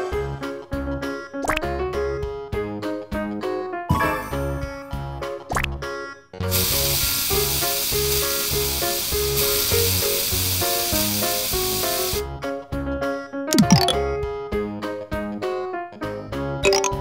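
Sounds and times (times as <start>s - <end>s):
cheerful children's music: 0.0s - 6.3s, 12.4s - 17.0s
spray can hiss: 6.5s - 12.3s.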